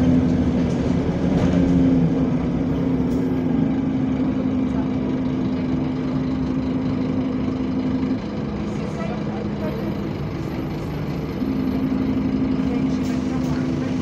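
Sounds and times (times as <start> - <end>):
bus engine rumble: 0.0 - 14.0.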